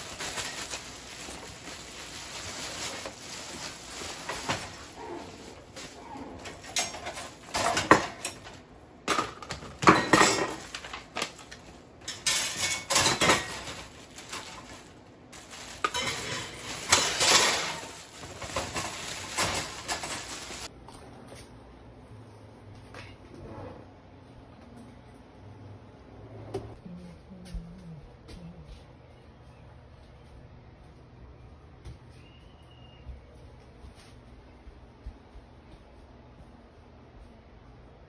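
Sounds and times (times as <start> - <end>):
plastic wrap crinkling: 0.0 - 6.0, 13.2 - 20.7
dish rack parts clattering: 2.0 - 20.7.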